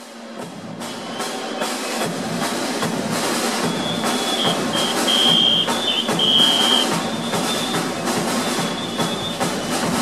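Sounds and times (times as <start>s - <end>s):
rapid drumbeat: 0.2s - 10.0s
shrill whistle blasts: 0.8s - 2.1s, 3.5s - 10.0s.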